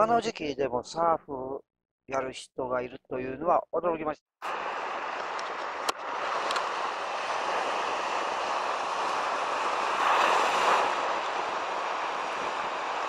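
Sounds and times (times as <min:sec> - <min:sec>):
ocean surf washing: 0:04.4 - 0:13.0.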